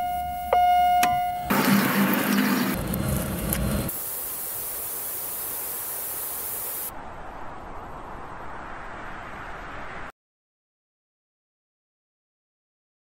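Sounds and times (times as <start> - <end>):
steady rushing hiss: 1.5 - 9.4.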